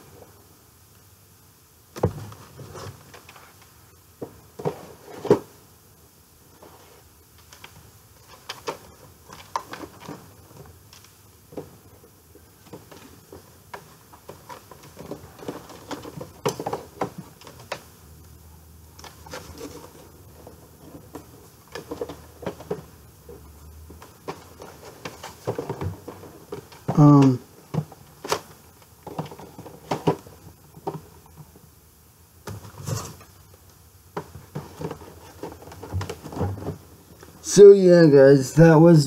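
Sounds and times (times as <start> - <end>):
plastic and card rustling: 6.6 - 17.9, 18.9 - 31.5, 34.2 - 37.4.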